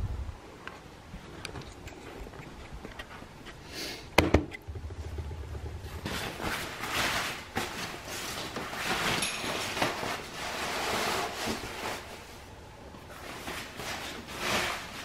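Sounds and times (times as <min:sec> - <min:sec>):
cloth curtains rustling: 0:06.0 - 0:15.0.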